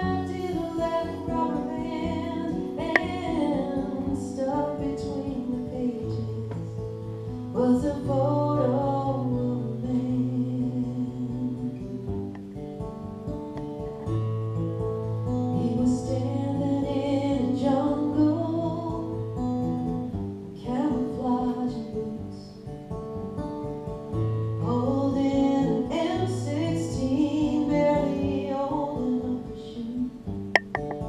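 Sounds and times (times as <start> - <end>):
woman singing: 0.0 - 12.2, 15.5 - 19.5, 20.6 - 22.7, 24.6 - 30.4
acoustic guitars strummed: 0.0 - 31.0.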